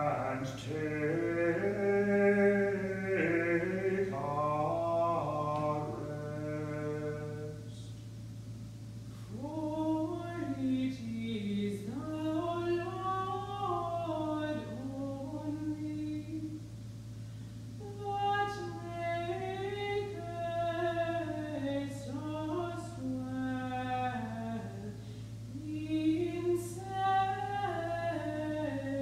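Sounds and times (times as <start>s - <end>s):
unaccompanied plainsong chant: 0.0s - 8.0s, 17.8s - 29.0s.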